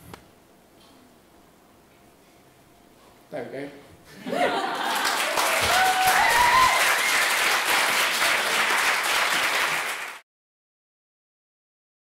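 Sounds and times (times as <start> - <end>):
audience applauding: 4.4 - 10.2.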